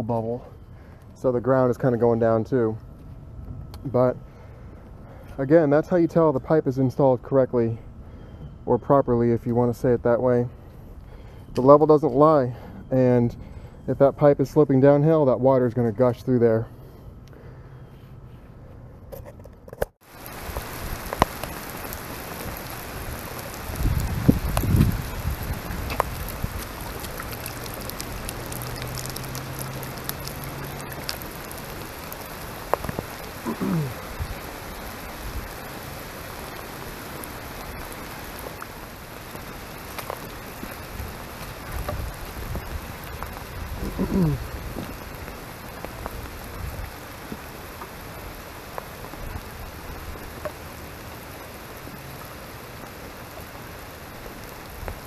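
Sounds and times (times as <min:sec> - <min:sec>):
steady rain falling: 0:20.0 - 0:55.0.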